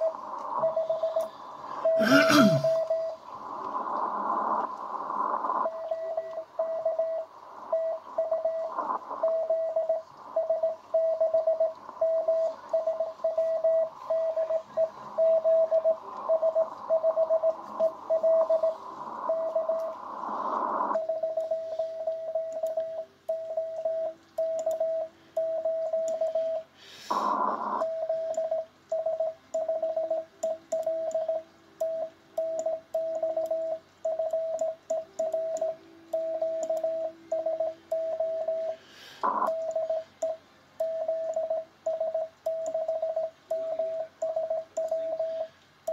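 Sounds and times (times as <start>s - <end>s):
morse code tone: 0.0s - 3.2s, 5.6s - 20.0s, 20.9s - 26.7s, 27.8s - 45.9s
radio band hiss: 0.0s - 24.3s, 25.0s - 28.8s, 37.7s - 41.3s, 43.2s - 45.9s.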